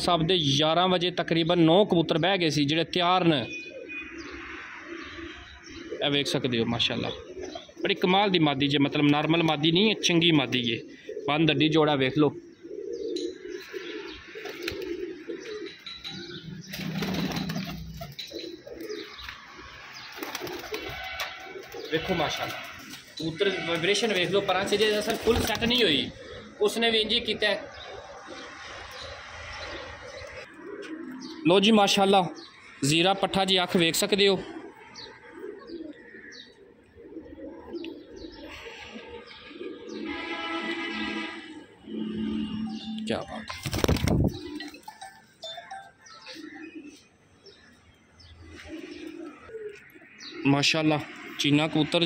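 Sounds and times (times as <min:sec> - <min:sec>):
pigeons cooing: 0:03.5 - 0:51.8
high falling bird chirps: 0:12.4 - 0:33.9
wing flaps: 0:43.5 - 0:44.8.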